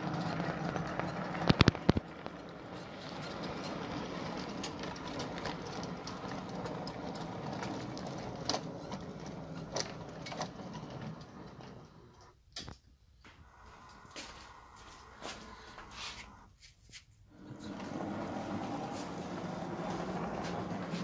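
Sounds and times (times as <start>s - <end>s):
model train running on track: 0.0s - 12.4s, 17.3s - 21.0s.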